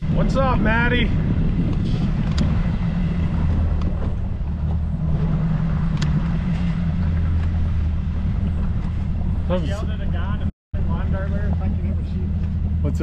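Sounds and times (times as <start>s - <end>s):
outboard motor idling: 0.0s - 13.0s.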